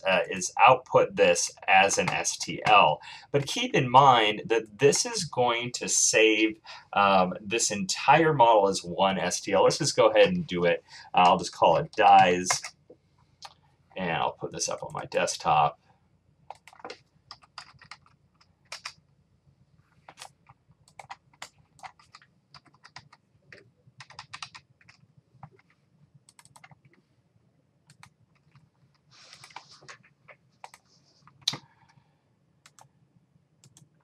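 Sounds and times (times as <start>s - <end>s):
keyboard typing clicks: 16.5s - 18.1s, 20.9s - 25.7s, 26.3s - 26.9s.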